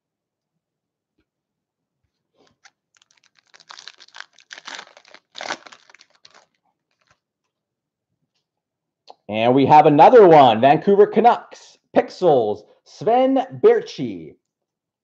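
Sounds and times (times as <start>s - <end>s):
foil wrapper tearing and crinkling: 2.4s - 7.2s.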